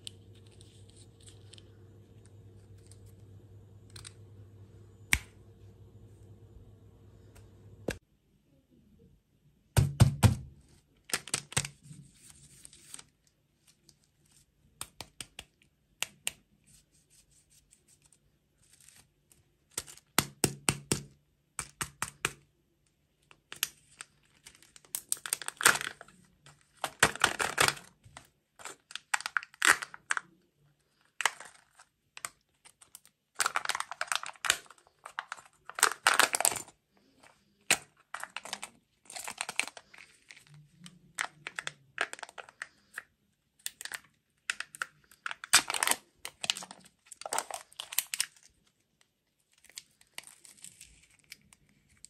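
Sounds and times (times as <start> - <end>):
plastic wrapper crinkling: 10.9 - 14.5, 23.2 - 52.0.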